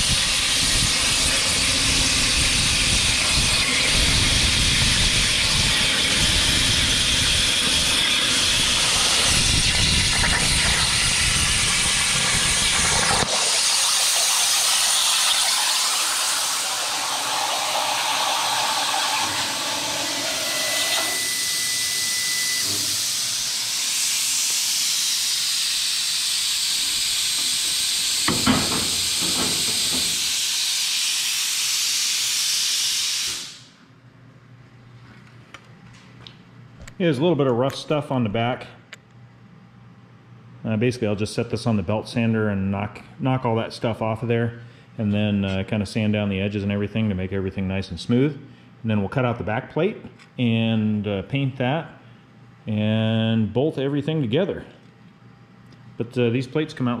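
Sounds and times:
steady air hiss: 0.0s - 22.0s, 22.6s - 33.8s
plasma torch cutting metal: 0.0s - 33.7s
clunk: 27.4s - 30.2s.

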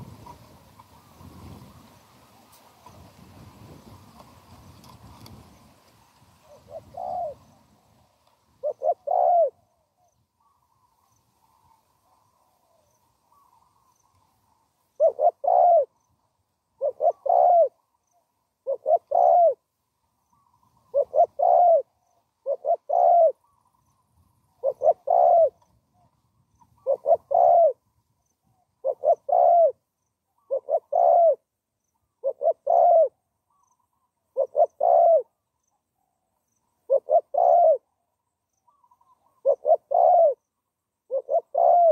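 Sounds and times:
dove cooing: 6.4s - 7.9s, 8.6s - 13.9s, 14.9s - 16.0s, 16.7s - 18.0s, 18.6s - 19.6s, 20.3s - 23.8s, 24.5s - 25.6s, 26.6s - 27.8s, 28.6s - 29.8s, 30.4s - 35.4s, 36.8s - 38.0s, 38.7s - 40.4s, 41.1s - 41.9s.

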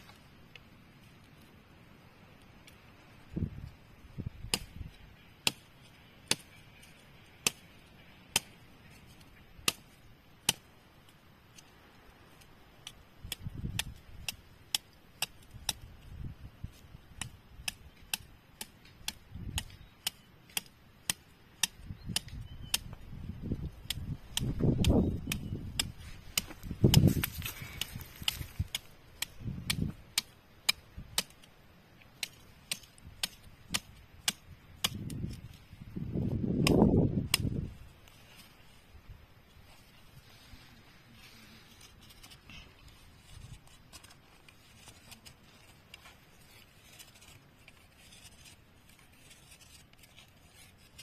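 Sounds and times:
machete chopping wooden stick: 23.8s - 31.4s, 32.2s - 35.3s, 36.4s - 37.6s.

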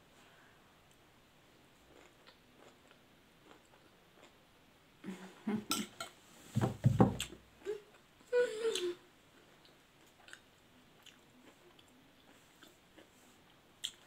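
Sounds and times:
chewing: 1.9s - 4.4s, 9.4s - 14.0s.

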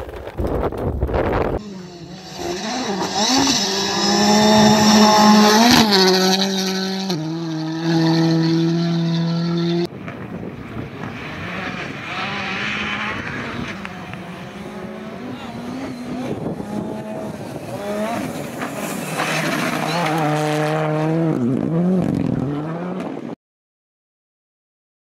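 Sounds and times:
rally car engines: 0.1s - 23.4s.

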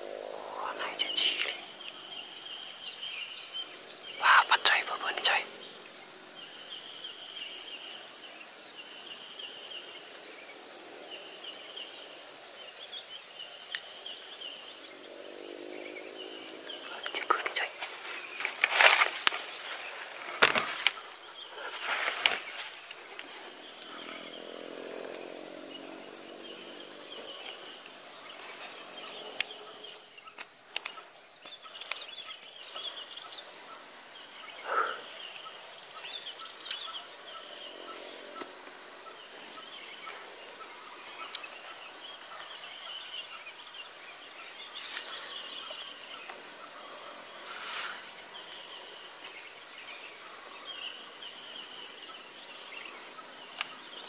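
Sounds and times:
high-pitched insect drone: 0.0s - 54.0s
bird calls: 15.7s - 54.0s
sharp knocks and rustles: 17.8s - 21.1s, 21.7s - 23.5s.

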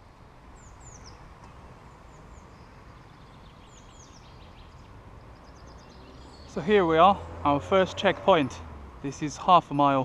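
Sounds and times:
high downward-sliding bird chirps: 0.6s - 8.6s.

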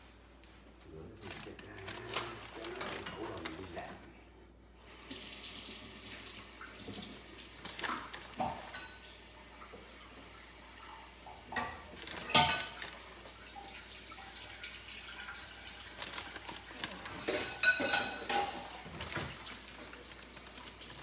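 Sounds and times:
plastic packet rustling: 0.0s - 4.2s, 7.5s - 8.8s, 11.8s - 13.6s, 15.1s - 21.0s.

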